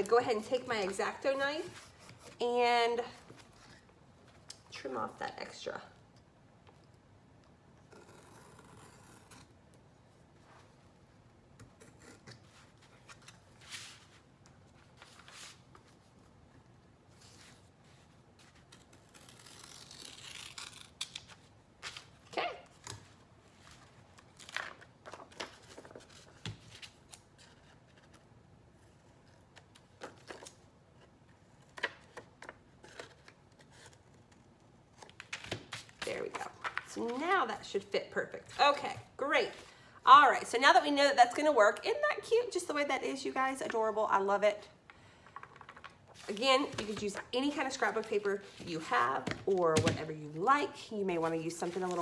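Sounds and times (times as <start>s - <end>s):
paper rustling: 23.0s - 28.2s, 51.2s - 52.0s.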